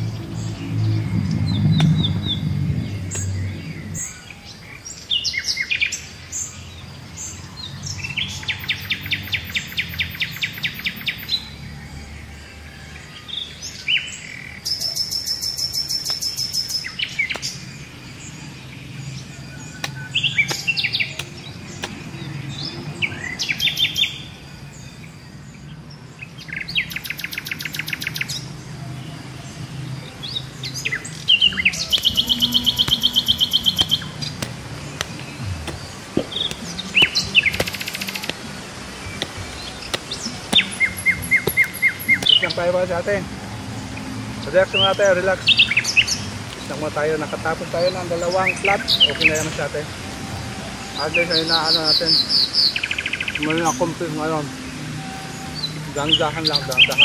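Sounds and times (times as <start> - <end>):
birds chirping and trilling: 0.0 - 57.0
hoe striking soil: 31.9 - 38.4, 39.2 - 42.5.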